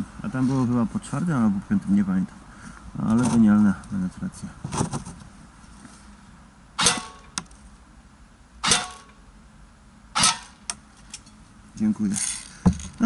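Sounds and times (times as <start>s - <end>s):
airsoft rifle shots: 6.8s - 7.4s, 8.6s - 9.2s, 10.1s - 10.7s.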